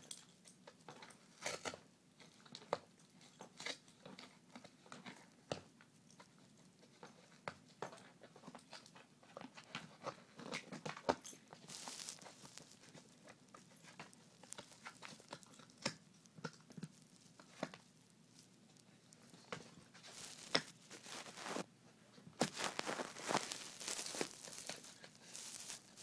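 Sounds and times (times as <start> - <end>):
puppy tearing cardboard: 19.2 - 21.6, 22.4 - 26.0.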